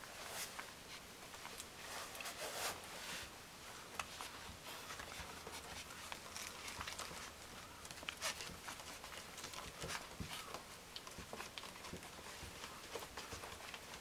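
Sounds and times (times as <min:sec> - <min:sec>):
puppy paws pattering on wooden floor: 0:00.0 - 0:14.0.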